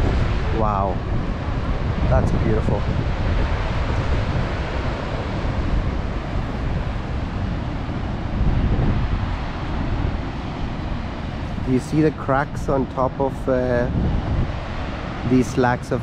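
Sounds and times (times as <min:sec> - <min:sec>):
ocean surf breaking on cliffs: 0:00.0 - 0:16.0
wind buffeting microphone: 0:00.0 - 0:16.0.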